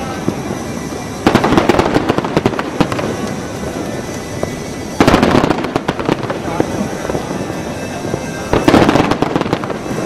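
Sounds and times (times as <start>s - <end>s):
fireworks exploding: 0.0s - 10.0s.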